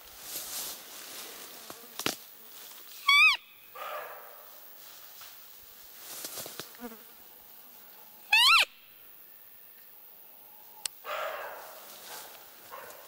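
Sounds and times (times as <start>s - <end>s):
deer call high squeak: 3.0s - 3.6s, 8.3s - 8.7s
faint rustling: 11.5s - 13.0s.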